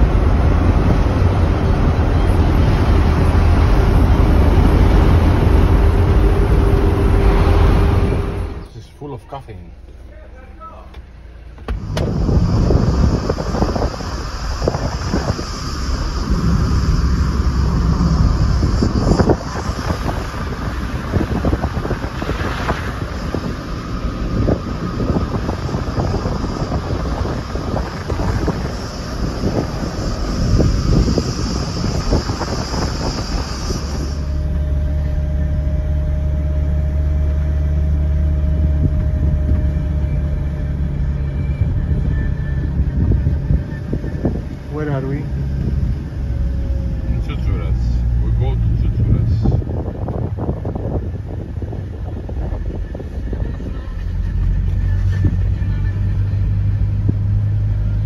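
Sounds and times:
wind buffeting microphone: 0.0s - 8.6s, 11.7s - 58.0s
engine and tyres drone: 0.0s - 58.0s
faint steady whine: 0.0s - 58.0s
road noise: 0.0s - 58.0s
high-pitched hiss: 11.6s - 36.8s.

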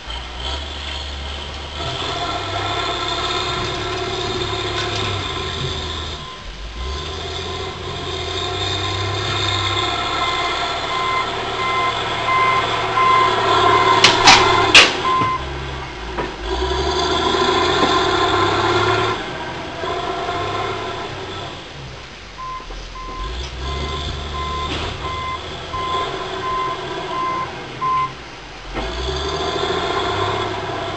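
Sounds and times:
excavator diesel engine and hydraulics: 0.0s - 30.9s
beeping alarm: 10.0s - 15.5s, 22.4s - 28.2s
sharp cracks: 13.6s - 15.4s.

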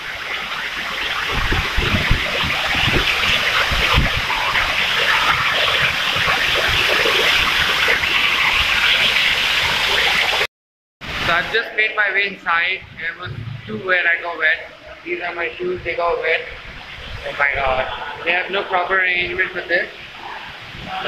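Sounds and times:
rainwater rushing: 0.0s - 21.0s
low thuds: 12.8s - 14.0s.

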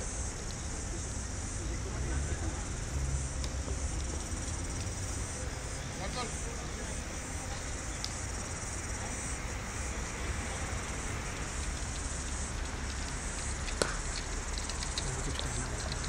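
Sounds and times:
faint ticks: 7.9s - 8.3s, 11.4s - 16.0s.

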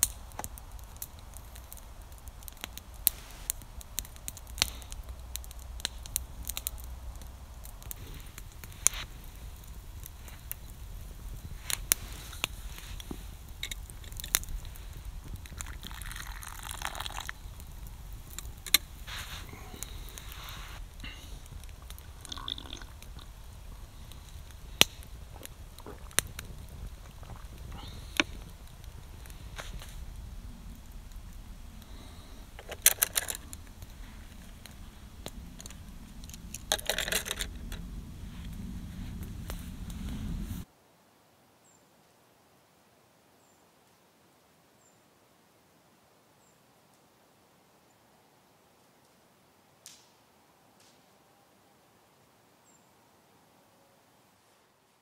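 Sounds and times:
campfire crackling and popping: 0.0s - 40.7s, 49.8s - 50.2s, 50.8s - 51.0s
rustling hiss: 0.0s - 42.1s
low rumble: 17.3s - 40.6s.

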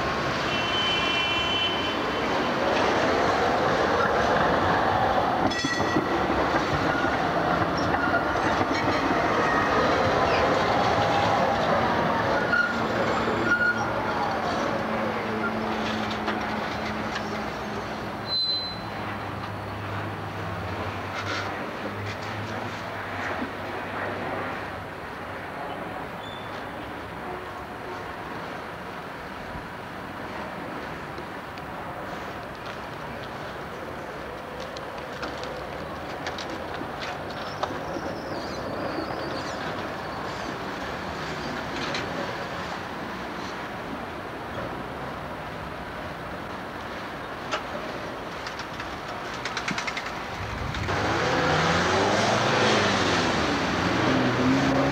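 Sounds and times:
tram wheels rumbling on rails: 1.9s - 54.9s
high-pitched wheel squeal: 12.4s - 14.2s, 18.2s - 19.0s.

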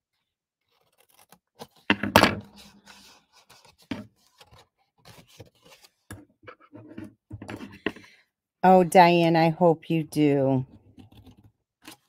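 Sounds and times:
card rustling: 2.5s - 6.9s.

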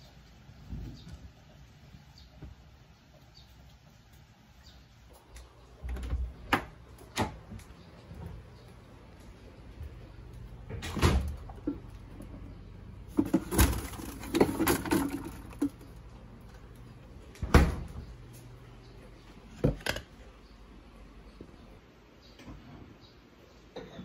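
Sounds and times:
low steady hum: 0.0s - 24.0s
fridge door shutting: 5.8s - 7.6s, 10.6s - 11.9s, 17.3s - 18.2s
knocks and rustling in fridge: 10.6s - 12.5s, 13.1s - 15.9s, 17.4s - 18.2s.

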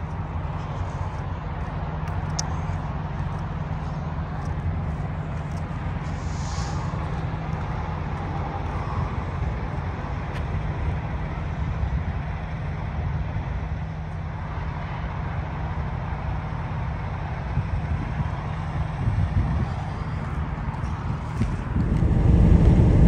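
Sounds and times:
road and tyre noise: 0.0s - 23.0s
truck engine drone: 0.0s - 23.0s.

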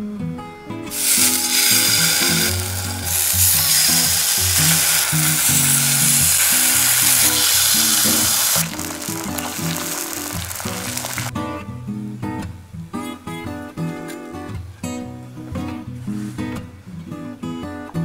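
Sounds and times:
food sizzling in a frying pan: 0.9s - 11.3s.

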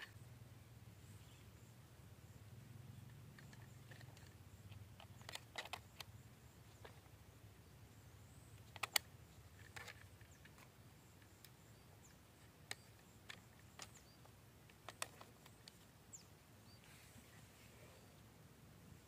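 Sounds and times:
small plastic and metal parts clicking: 3.4s - 7.0s, 8.6s - 11.6s, 12.6s - 15.9s.

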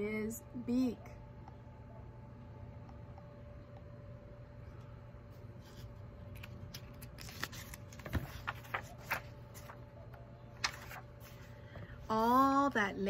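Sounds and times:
faint hum: 0.0s - 13.0s
book pages turning: 5.3s - 11.6s.

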